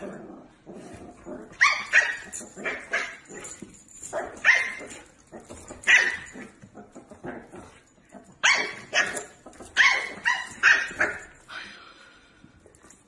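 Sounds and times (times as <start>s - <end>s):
puppy barking: 1.6s - 3.3s, 4.2s - 5.0s, 5.8s - 6.4s, 8.4s - 11.4s.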